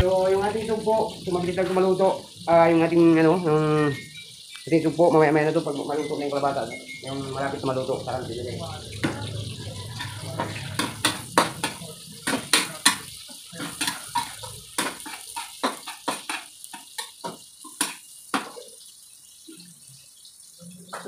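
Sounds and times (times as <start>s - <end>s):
onions frying in oil: 0.0s - 21.0s
metal spatula scraping a wok: 8.9s - 18.1s.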